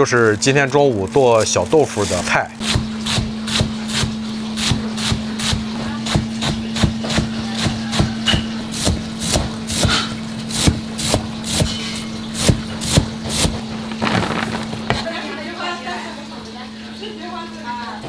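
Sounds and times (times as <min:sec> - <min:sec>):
greens scraped off board: 0:08.8 - 0:15.1.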